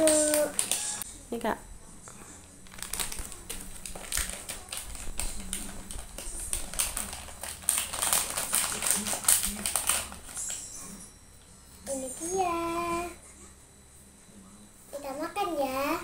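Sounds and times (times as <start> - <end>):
plastic candy packet crinkling: 0.0 - 1.0, 2.6 - 10.7.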